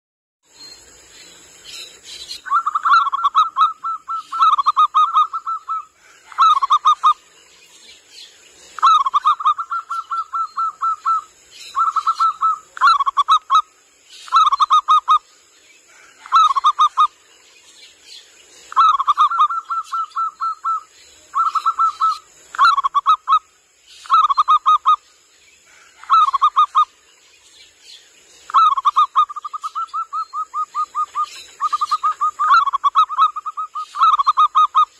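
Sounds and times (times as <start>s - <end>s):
faint high hiss: 0.4s - 34.9s
dove cooing in trills: 2.4s - 7.2s, 8.8s - 13.6s, 18.7s - 23.4s.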